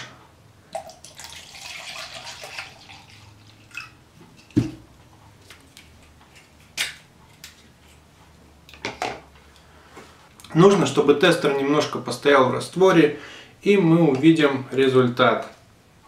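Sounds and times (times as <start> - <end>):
liquid pouring into plastic beaker: 0.7 - 4.0
bottle set down on table: 4.5 - 4.8.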